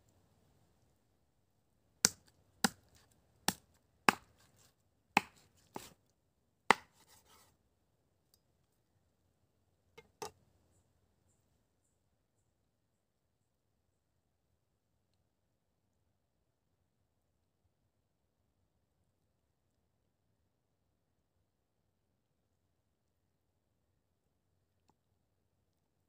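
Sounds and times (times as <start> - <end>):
cleaver chopping on wooden board: 3.5 - 4.5, 5.2 - 5.9, 6.7 - 7.2.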